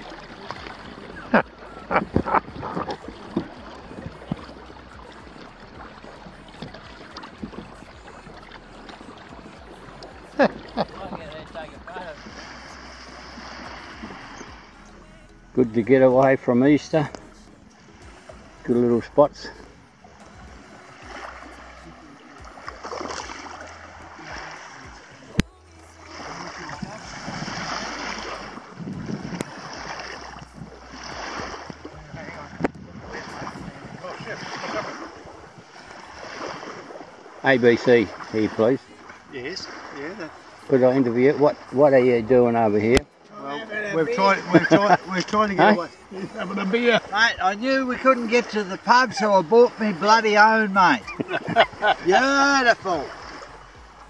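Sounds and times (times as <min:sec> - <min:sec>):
wind rumbling on microphone: 0:00.0 - 0:14.8, 0:26.2 - 0:37.5
small waves lapping on shore: 0:00.0 - 0:54.0
water splashing against hull: 0:00.0 - 0:54.0.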